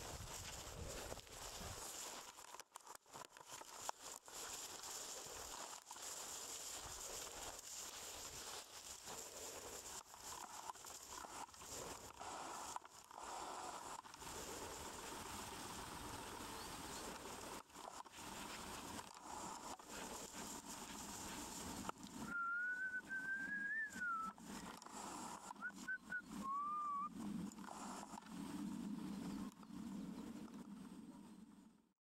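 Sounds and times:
rustling hiss: 0:00.0 - 0:30.8
person whistling: 0:22.2 - 0:24.4, 0:25.5 - 0:27.1.

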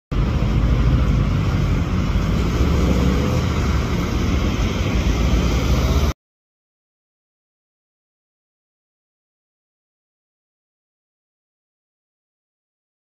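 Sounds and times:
car engines in traffic: 0:00.1 - 0:06.2.

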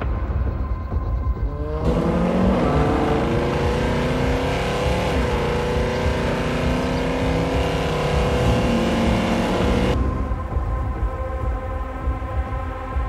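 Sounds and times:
racing car engines at high revs: 0:01.5 - 0:10.0.

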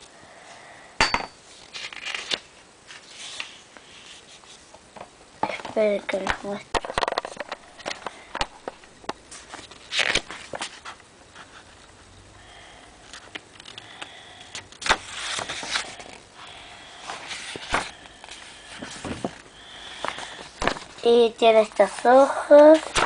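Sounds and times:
paper pages rustling: 0:01.5 - 0:04.7, 0:06.8 - 0:11.8, 0:14.8 - 0:16.2, 0:17.1 - 0:23.0.

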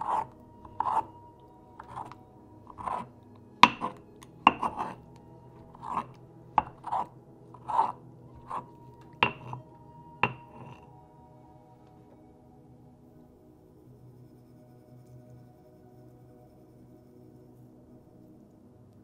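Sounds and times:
pestle squishing tomatoes: 0:00.0 - 0:01.2, 0:01.8 - 0:05.0, 0:05.6 - 0:09.6, 0:10.2 - 0:10.8
stone-on-stone knocks: 0:01.8 - 0:05.0, 0:05.7 - 0:08.6, 0:09.2 - 0:09.6, 0:10.2 - 0:10.8.

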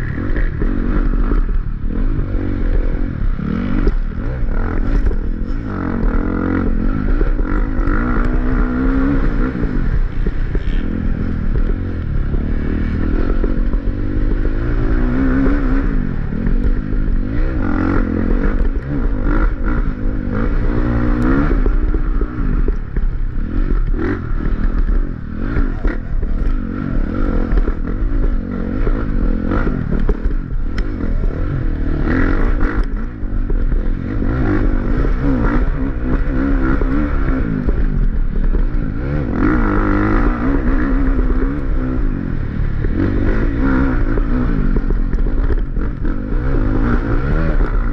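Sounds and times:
dirt bike engine revving: 0:00.0 - 0:47.9.

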